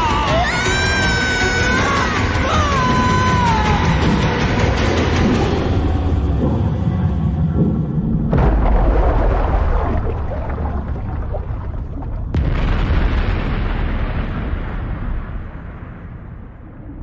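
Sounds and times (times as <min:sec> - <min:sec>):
deep booming explosion rumble: 0:07.9 - 0:17.0
sharp explosion blast: 0:08.3 - 0:11.5, 0:12.3 - 0:17.0.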